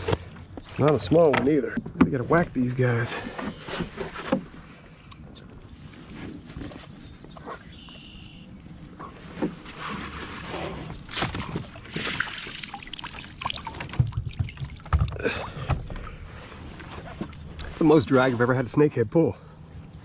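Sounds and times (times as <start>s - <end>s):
knocks and rattles on kayak: 0.0s - 4.8s, 8.9s - 12.7s, 13.4s - 18.3s
water splashing and sloshing: 8.6s - 18.6s.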